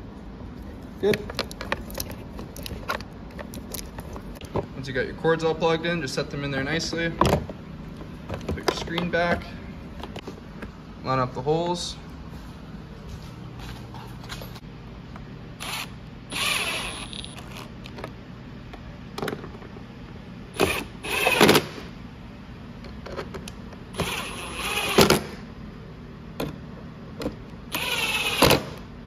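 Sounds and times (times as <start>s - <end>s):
cordless impact driver: 15.6s - 17.2s, 20.6s - 21.8s, 24.0s - 25.4s, 27.7s - 28.8s.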